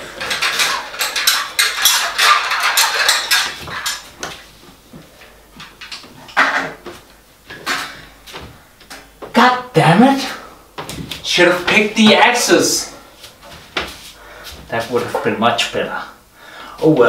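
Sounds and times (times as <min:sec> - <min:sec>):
metal clattering and rattling: 0:00.0 - 0:04.4.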